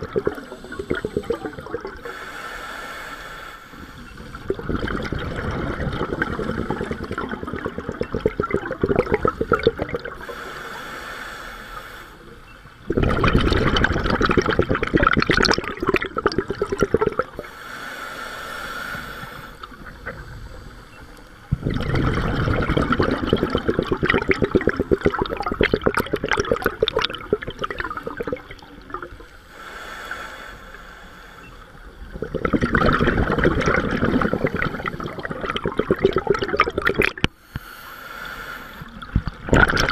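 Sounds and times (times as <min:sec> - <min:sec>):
diver exhaust bubbles: 0:00.0 - 0:02.2, 0:04.2 - 0:10.4, 0:12.9 - 0:17.5, 0:21.5 - 0:29.2, 0:32.0 - 0:37.3, 0:38.9 - 0:39.9.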